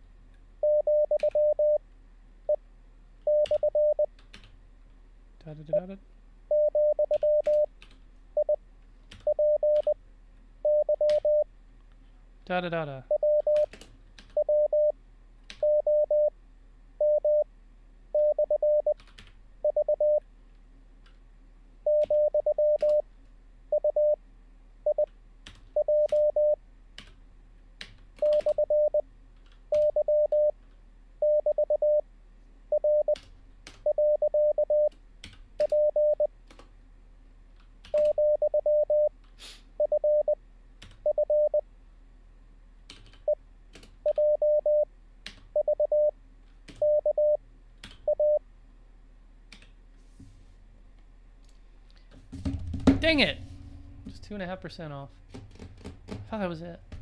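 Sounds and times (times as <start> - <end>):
morse code tone: 0.6 - 1.8, 3.3 - 4.1, 6.5 - 7.7, 8.4 - 8.6, 9.3 - 10.0, 10.6 - 11.5, 13.1 - 13.7, 14.4 - 14.9, 15.6 - 16.3, 17.0 - 17.4, 18.2 - 19.0, 19.6 - 20.2, 21.9 - 23.0, 23.7 - 24.2, 25.8 - 26.6, 28.2 - 29.0, 29.7 - 30.5, 31.2 - 32.0, 32.7 - 33.2, 33.8 - 34.9, 35.6 - 36.3, 38.0 - 39.1, 39.8 - 40.4, 41.1 - 41.6, 44.1 - 44.9, 45.6 - 46.1, 46.8 - 47.4, 48.1 - 48.4
computer keyboard keys clicking: 13.4 - 14.4, 19.0 - 19.4.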